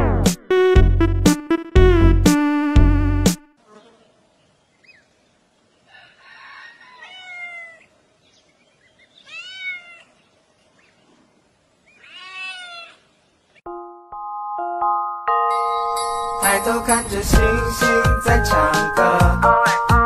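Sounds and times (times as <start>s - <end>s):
cat meowing: 7.0s - 7.9s, 9.2s - 10.2s, 12.0s - 13.0s.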